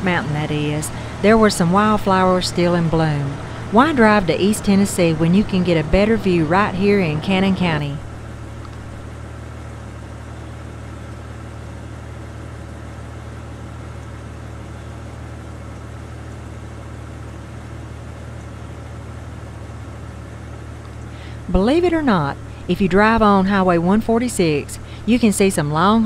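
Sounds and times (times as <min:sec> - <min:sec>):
constant hiss: 0:00.0 - 0:09.3, 0:20.6 - 0:26.0
vehicle engine running: 0:00.0 - 0:26.0.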